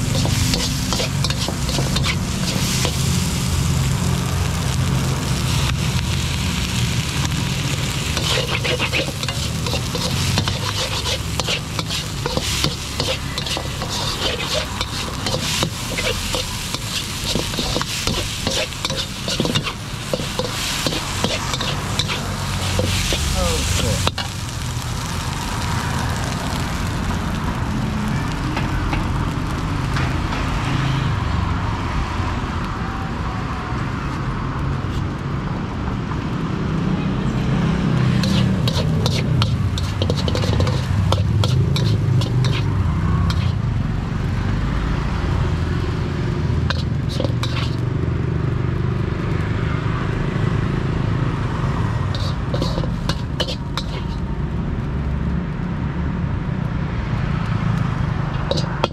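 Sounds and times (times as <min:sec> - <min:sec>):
food sizzling: 0:00.0 - 0:31.2, 0:37.8 - 0:49.4, 0:51.1 - 0:54.6, 0:57.8 - 0:58.9
metal ladle clanking on wok: 0:58.4 - 0:58.9.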